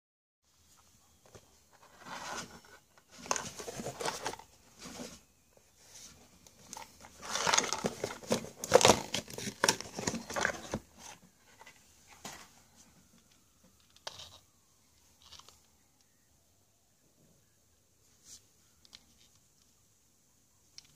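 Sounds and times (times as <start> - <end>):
cardboard packaging rustling: 1.1 - 14.6.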